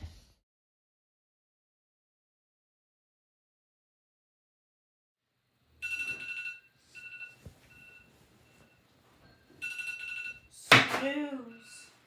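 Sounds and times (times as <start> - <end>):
electronic alarm beeping: 5.8 - 10.5, 11.4 - 12.0.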